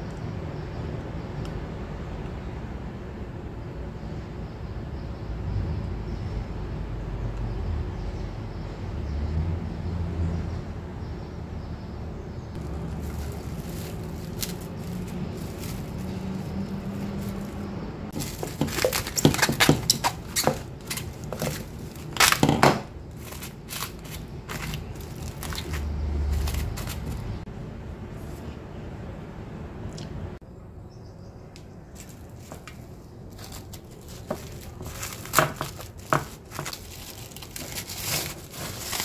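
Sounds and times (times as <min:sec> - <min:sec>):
sharp clatters and knocks: 0:12.6 - 0:27.4, 0:32.0 - 0:39.0.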